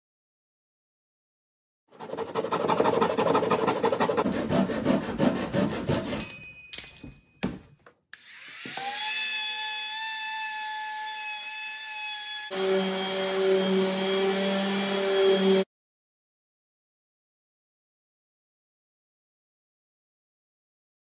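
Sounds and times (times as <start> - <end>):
hand saw rasping through plywood: 1.9 - 6.3.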